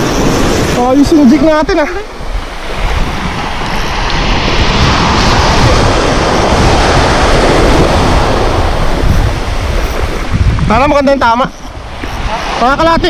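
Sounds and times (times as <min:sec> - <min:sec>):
surf washing on beach: 0:00.0 - 0:13.0
wind buffeting microphone: 0:00.0 - 0:13.0.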